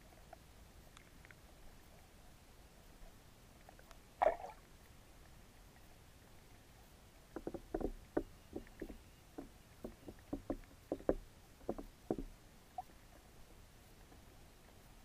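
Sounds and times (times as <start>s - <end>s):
underwater knocks and clicks: 7.3s - 12.4s.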